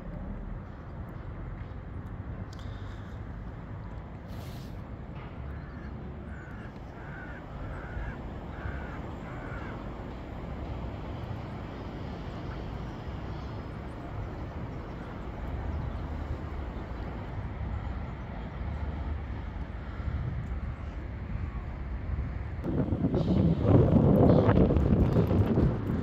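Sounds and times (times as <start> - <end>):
steady low rumble: 2.1 - 26.0
crow cawing: 5.5 - 10.2.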